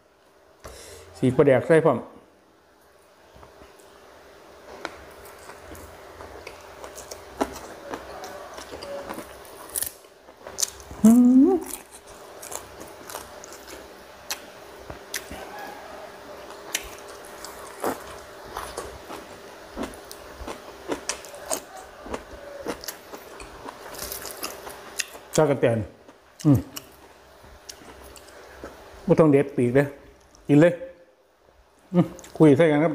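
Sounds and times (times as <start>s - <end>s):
chewing and lip smacks: 16.5s - 25.2s.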